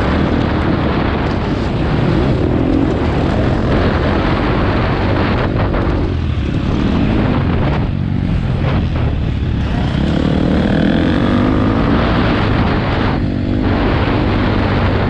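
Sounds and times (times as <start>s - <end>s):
motorbike engine revving: 0.0s - 15.0s
wind on microphone: 0.0s - 15.0s.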